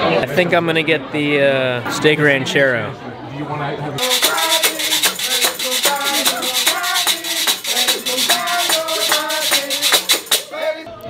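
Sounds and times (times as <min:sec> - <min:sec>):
hands clapping: 0:04.0 - 0:10.5
metal shaker rattling: 0:04.0 - 0:10.5
group of voices singing: 0:04.0 - 0:10.9.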